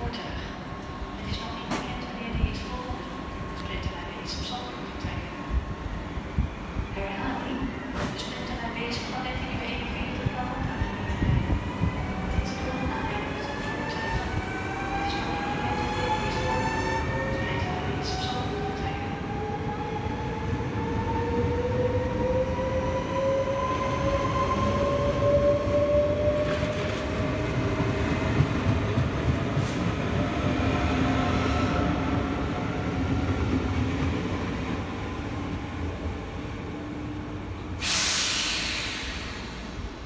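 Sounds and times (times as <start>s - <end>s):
train rolling rumble: 0.0s - 40.0s
loud hiss: 37.8s - 39.8s.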